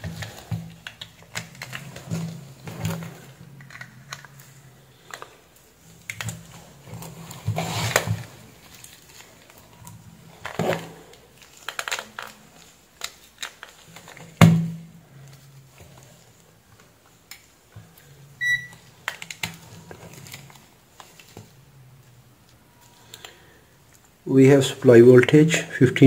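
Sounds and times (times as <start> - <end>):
multimeter beep: 18.4 - 18.8.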